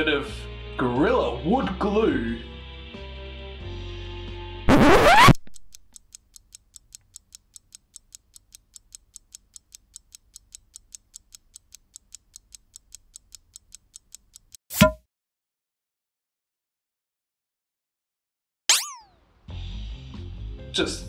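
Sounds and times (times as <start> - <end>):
light rapid ticking: 5.6 - 14.6.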